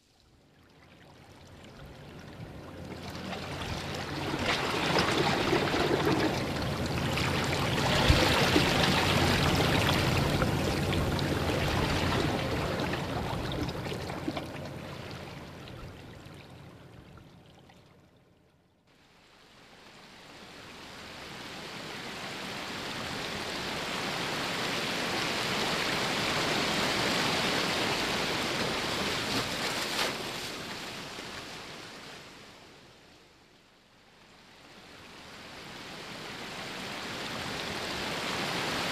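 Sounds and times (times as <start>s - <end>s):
rushing water: 0.0s - 18.1s, 19.0s - 32.8s, 34.3s - 38.9s.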